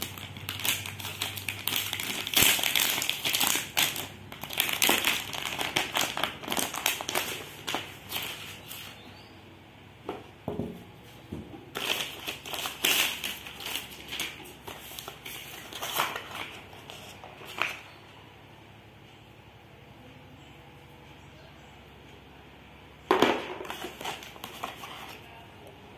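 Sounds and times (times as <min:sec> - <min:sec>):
packaging crinkling and rustling: 0:00.0 - 0:09.0, 0:11.7 - 0:17.9, 0:23.5 - 0:25.3.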